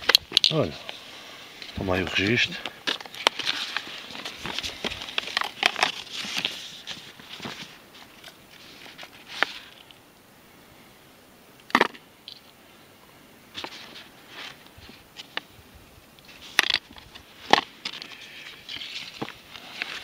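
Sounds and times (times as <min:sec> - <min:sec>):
paper rustling and crinkling: 0:01.7 - 0:09.9, 0:16.3 - 0:20.0.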